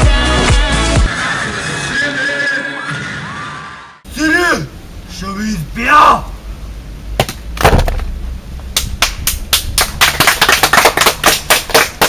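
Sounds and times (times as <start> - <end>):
sharp hand claps: 8.8 - 12.0.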